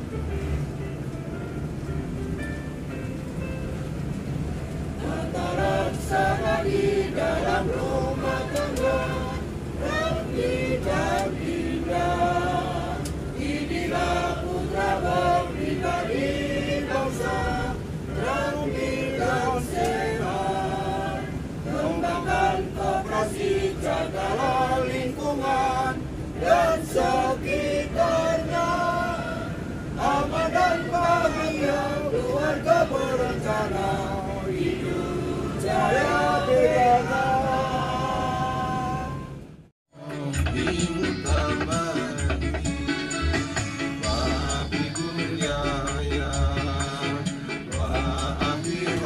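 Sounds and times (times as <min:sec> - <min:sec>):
bus engine hum: 0:00.0 - 0:49.0
people singing in chorus: 0:05.0 - 0:39.4, 0:40.0 - 0:49.0.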